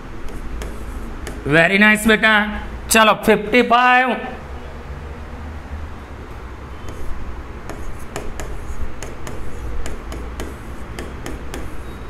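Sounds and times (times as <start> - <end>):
pen tapping and clicking: 0.2 - 1.4, 6.8 - 11.8.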